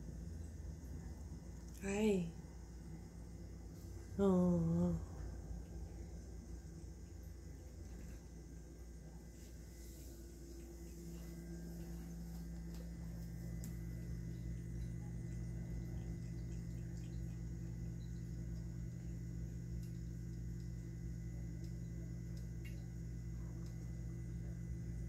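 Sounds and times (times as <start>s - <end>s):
small pump humming: 0.0s - 25.0s
water trickling: 13.5s - 21.0s.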